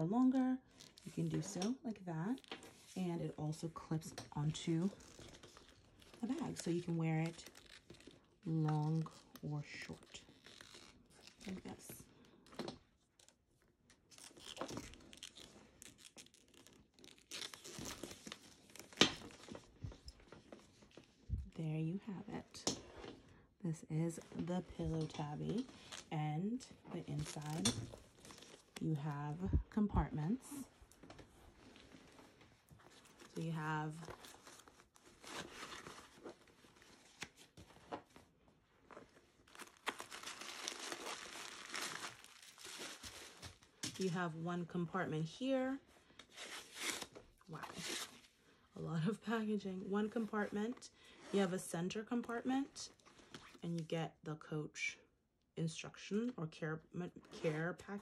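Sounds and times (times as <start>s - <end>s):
tissue paper rustling: 30.3s - 44.1s.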